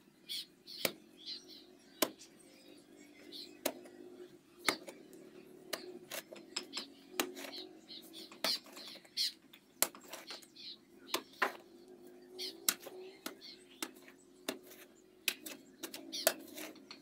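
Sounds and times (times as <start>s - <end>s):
hoe striking hard soil: 5.7s - 9.1s, 12.6s - 17.0s.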